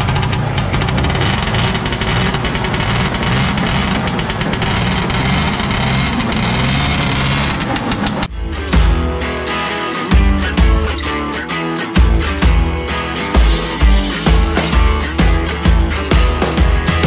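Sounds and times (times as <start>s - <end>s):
snowmobile engine running: 0.0s - 8.3s.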